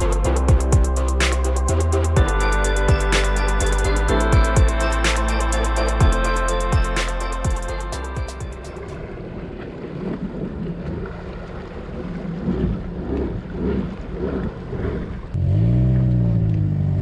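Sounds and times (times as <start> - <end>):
water churning: 0.0 - 15.4
loud low engine hum: 15.2 - 17.0.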